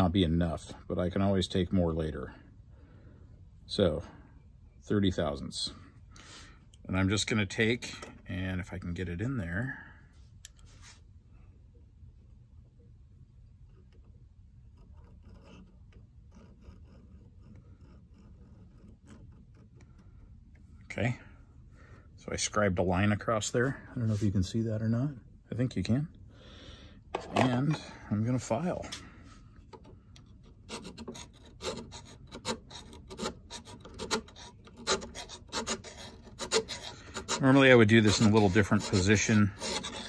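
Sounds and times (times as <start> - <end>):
caliper tip scratching metal: 13.6 - 20.4, 29.7 - 40.0
hand file rasping on cast iron: 14.7 - 20.2, 30.4 - 40.0.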